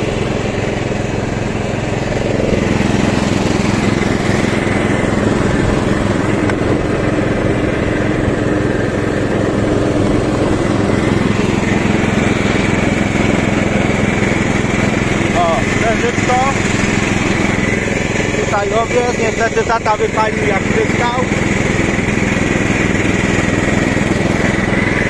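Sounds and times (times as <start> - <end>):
lawn tractor engine running: 0.0 - 25.0.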